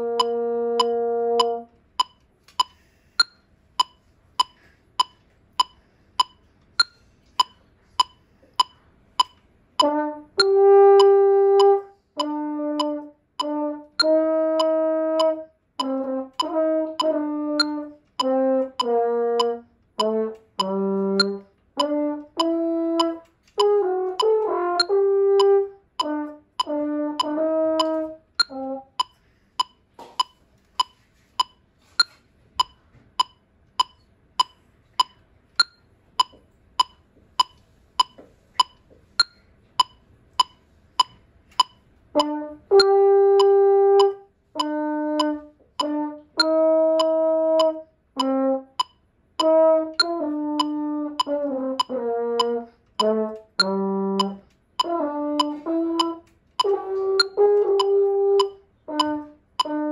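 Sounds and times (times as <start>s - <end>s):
french horn playing: 0.0s - 1.8s, 9.8s - 28.9s, 42.2s - 48.8s, 49.4s - 59.9s
metronome ticking: 0.0s - 59.9s.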